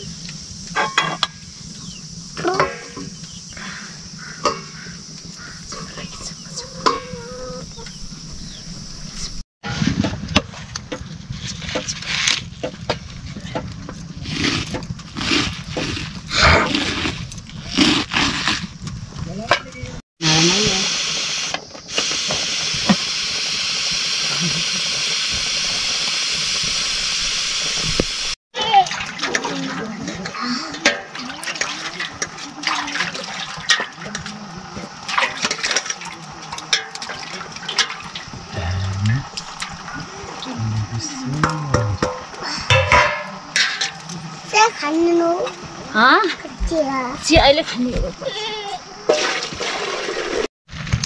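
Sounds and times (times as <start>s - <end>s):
pressure cooker steam hiss: 0.0s - 7.6s, 20.2s - 28.4s.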